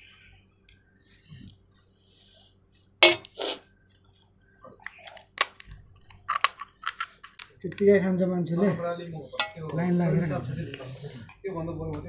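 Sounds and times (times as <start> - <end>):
crisp shells cracking and crunching: 4.8 - 8.0.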